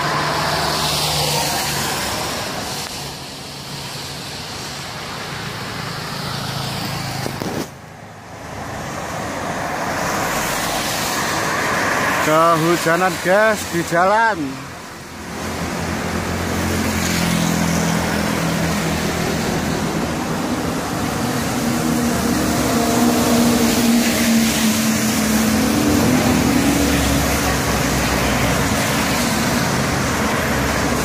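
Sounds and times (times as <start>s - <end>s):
tyres hissing on wet road: 0.0s - 31.0s
vehicle engines passing: 0.0s - 31.0s
heavy truck engine passing close: 15.6s - 31.0s.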